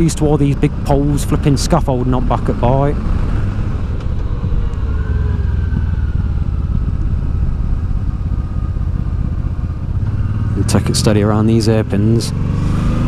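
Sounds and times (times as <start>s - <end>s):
motorcycle engine running: 0.0s - 13.0s
wind rush over microphone: 0.8s - 10.7s.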